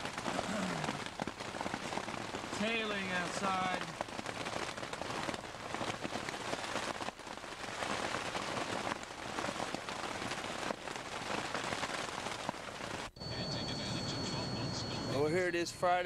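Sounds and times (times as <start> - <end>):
hailstones ticking: 0.0 - 16.0
rain hissing: 0.0 - 16.0.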